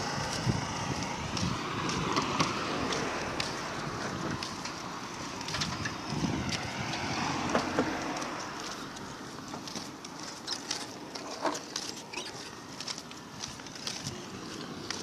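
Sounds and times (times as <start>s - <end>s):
wind on microphone: 0.0s - 2.6s, 5.3s - 7.8s.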